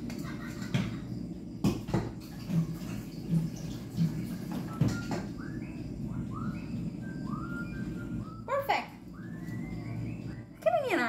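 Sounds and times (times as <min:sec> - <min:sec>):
pot knocking against sink: 0:01.6 - 0:05.3.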